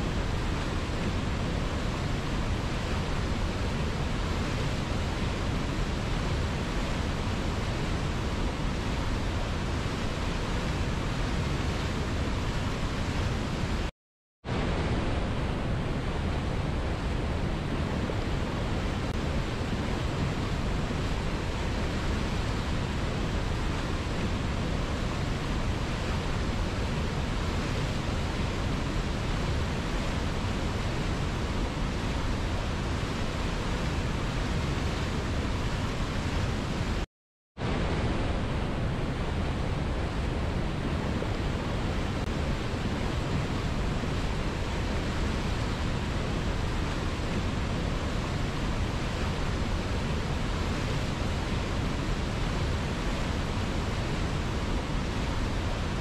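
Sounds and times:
river rapids rushing: 37.6s - 56.0s.

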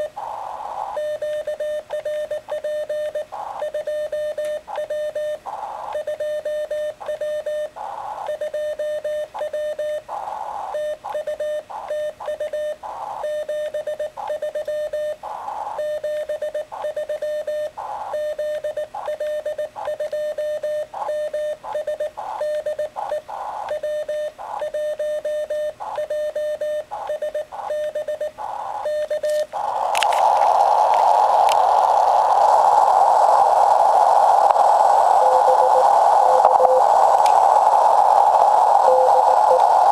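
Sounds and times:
radio receiver hiss: 0.0s - 1.6s, 3.1s - 8.5s, 10.0s - 13.4s, 14.0s - 16.9s, 17.7s - 24.9s, 26.8s - 39.9s
morse code tone: 35.2s - 37.1s, 38.8s - 39.9s.

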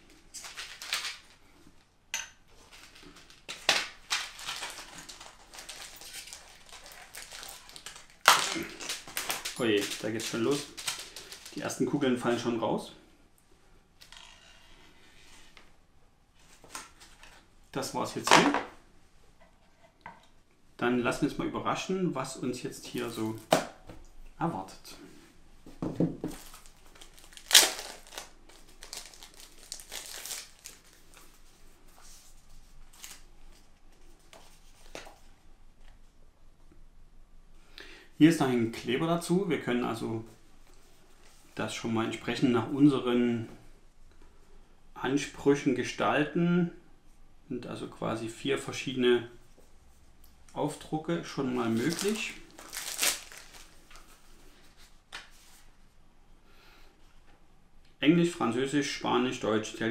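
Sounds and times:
plastic packaging crinkling: 0.1s - 1.4s, 2.6s - 11.9s, 26.2s - 31.5s, 51.6s - 54.8s.

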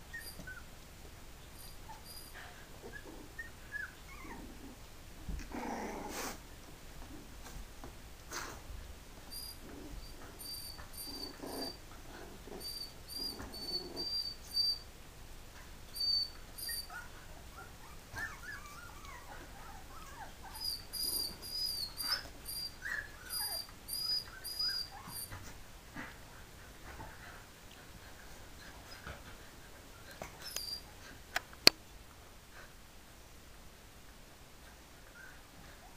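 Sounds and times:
puppies squeaking and whining: 0.1s - 0.7s, 1.5s - 4.7s, 9.3s - 14.9s, 15.9s - 25.6s, 28.6s - 31.2s.

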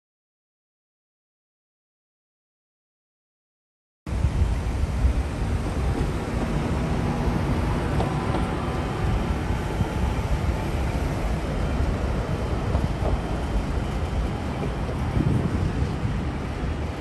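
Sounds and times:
car road and wind rumble: 4.1s - 17.0s.

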